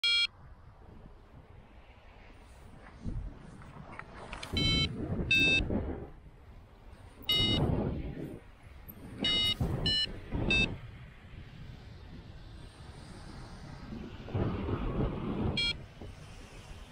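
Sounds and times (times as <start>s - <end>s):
variometer beeping: 0.0s - 0.3s, 4.5s - 5.6s, 7.3s - 7.7s, 9.2s - 10.8s, 15.6s - 15.8s
wind rushing on microphone: 0.1s - 16.9s.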